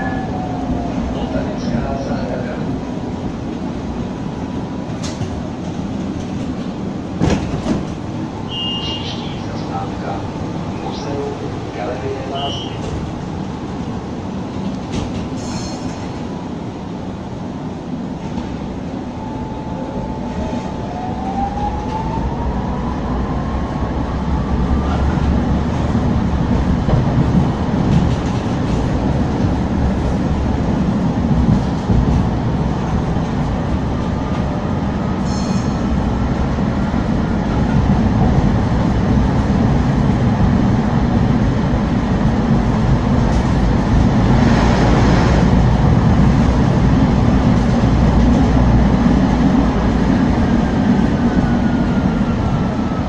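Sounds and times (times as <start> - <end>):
tram wheels running on rails: 0.0 - 20.8, 21.4 - 53.0.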